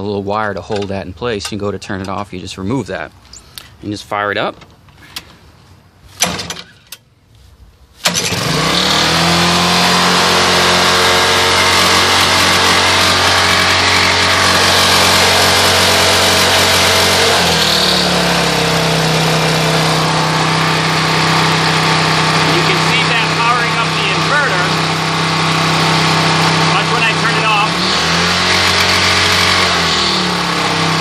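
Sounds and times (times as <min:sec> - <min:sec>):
lawn mower engine starting: 0:08.0 - 0:31.0.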